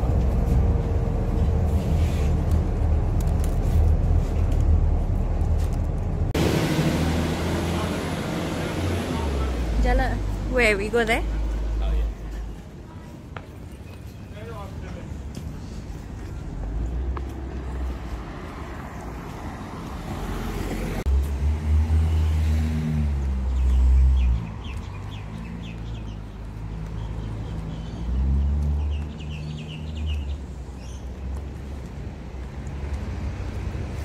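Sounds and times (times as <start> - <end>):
vehicle engine passing: 0.0 - 12.2
birds chirping: 13.5 - 15.1, 23.2 - 31.6.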